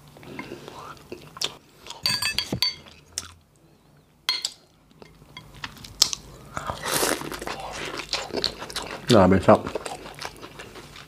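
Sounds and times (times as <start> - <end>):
person chewing food: 0.2 - 2.0, 2.8 - 3.4, 4.9 - 11.0.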